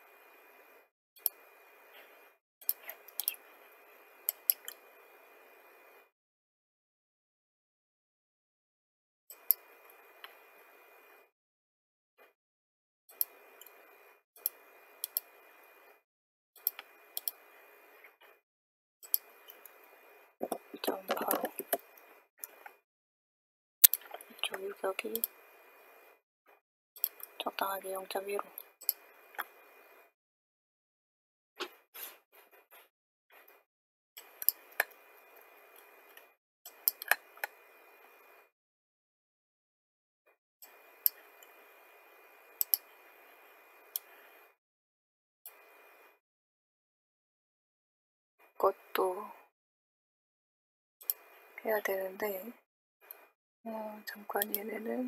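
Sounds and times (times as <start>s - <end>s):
computer mouse clicking: 2.6s - 3.4s, 14.4s - 15.3s, 16.6s - 17.4s, 20.4s - 22.8s, 23.8s - 25.4s, 35.8s - 37.6s, 42.6s - 42.9s.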